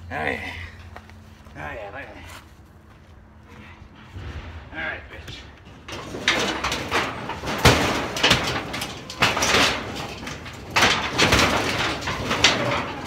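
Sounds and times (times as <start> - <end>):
sheet metal scraping and rattling: 3.4 - 13.0.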